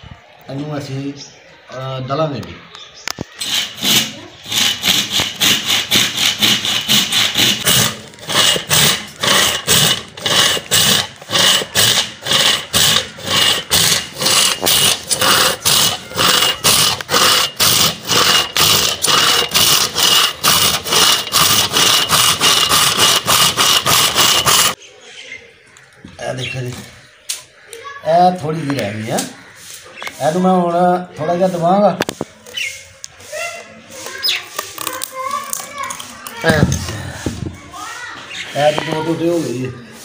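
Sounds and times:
hand saw cutting log: 3.4s - 24.8s.

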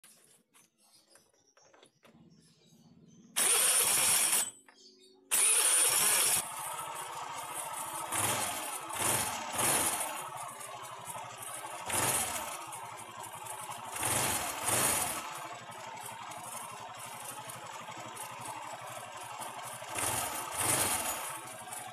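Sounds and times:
scooter engine starting and idling: 1.8s - 4.7s, 5.3s - 21.9s
engine throttle blips: 5.3s - 21.9s.

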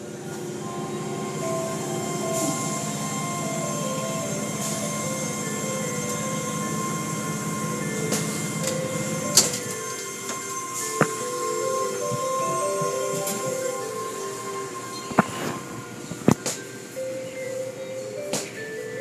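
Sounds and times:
car wash water spray and machinery: 0.0s - 9.9s.

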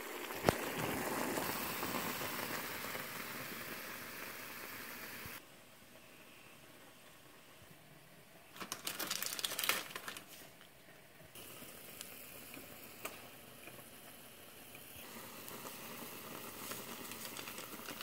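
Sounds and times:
plastic wrapper crinkling: 8.5s - 10.7s, 16.6s - 18.0s
dry noodles crunching: 8.6s - 10.3s.

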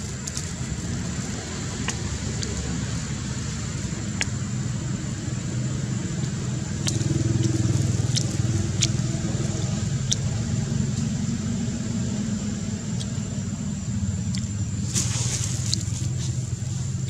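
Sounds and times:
distant road traffic rumble: 0.0s - 17.0s
sharp clicks: 6.2s - 9.1s.

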